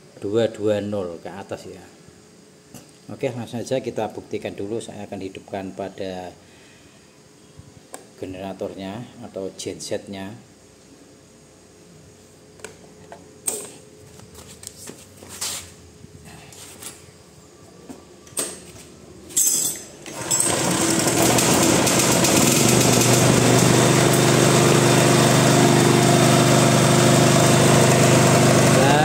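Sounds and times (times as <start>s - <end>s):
generator engine running: 20.0s - 29.0s.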